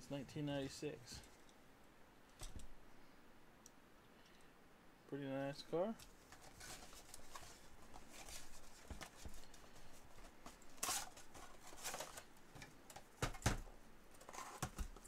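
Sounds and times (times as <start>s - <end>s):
packaging rustling: 6.1s - 12.3s.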